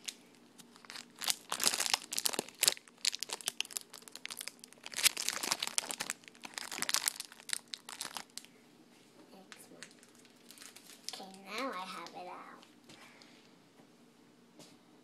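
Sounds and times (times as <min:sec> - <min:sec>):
plastic wrapper crinkling and tearing: 0:00.0 - 0:08.5, 0:09.5 - 0:12.2.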